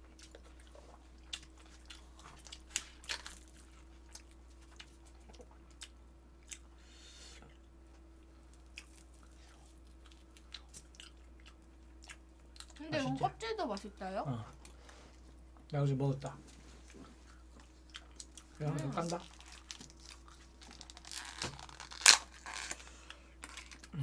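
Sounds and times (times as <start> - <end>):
chewing and mouth clicks: 0.0 - 6.7, 8.5 - 12.8, 17.0 - 21.0
low steady hum: 0.0 - 24.0.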